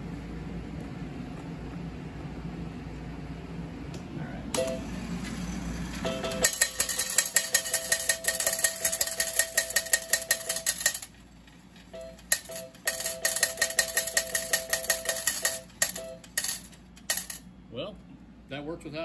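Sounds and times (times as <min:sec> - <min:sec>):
coins clattering into metal tray: 0:06.0 - 0:17.4
electronic payout tone: 0:11.9 - 0:16.4.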